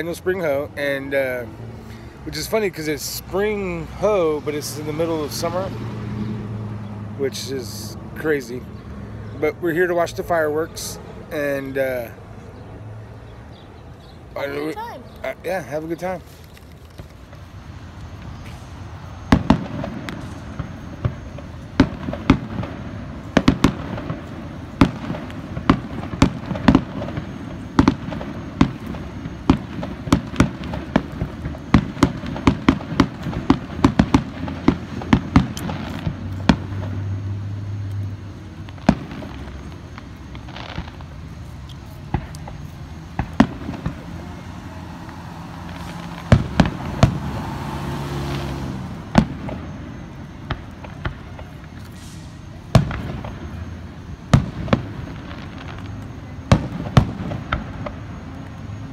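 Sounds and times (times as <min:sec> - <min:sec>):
firework shells bursting: 0:16.3 - 0:37.2, 0:45.0 - 0:47.6.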